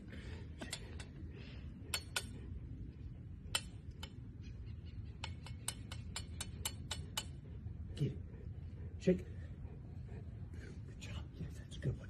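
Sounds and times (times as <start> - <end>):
steady low rumble: 0.0 - 12.0
sharp irregular clicks: 3.5 - 4.2, 5.1 - 7.4.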